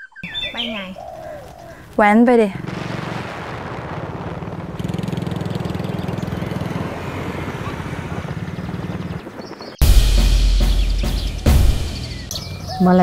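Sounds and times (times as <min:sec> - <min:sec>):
motorcycle engine running: 0:04.0 - 0:10.3.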